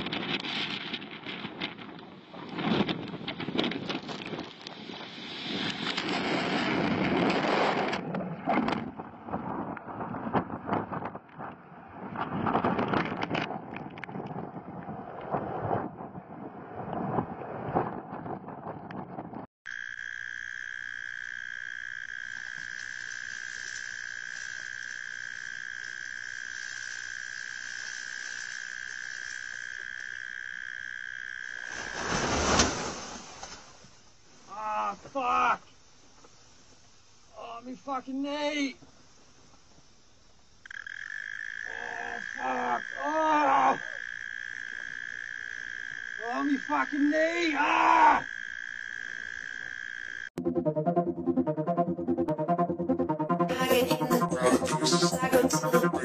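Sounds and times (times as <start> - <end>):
wind buffeting microphone: 0.0 - 19.5
night animals calling: 40.6 - 50.3
high trill: 50.4 - 56.0.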